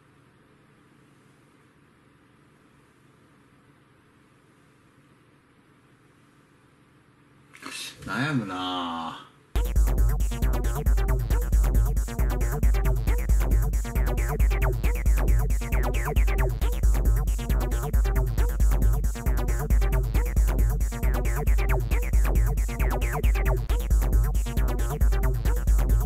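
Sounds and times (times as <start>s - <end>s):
electronic music with heavy bass: 9.6s - 26.0s.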